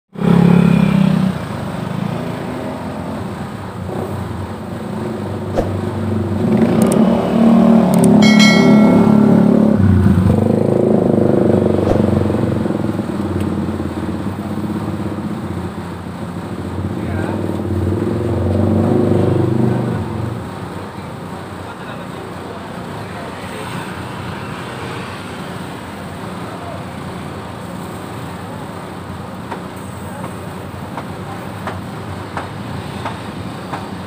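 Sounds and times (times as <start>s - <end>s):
vehicle engines running: 0.1s - 34.0s.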